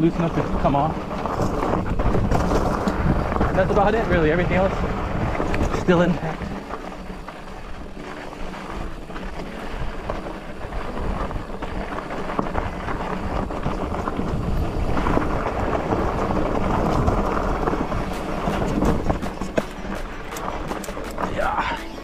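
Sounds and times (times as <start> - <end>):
bike rattling: 0.0 - 22.0
bike tyres grinding over dirt: 0.0 - 22.0
wind rumbling on microphone: 0.0 - 22.0
sharp clicks and knocks: 18.4 - 21.4.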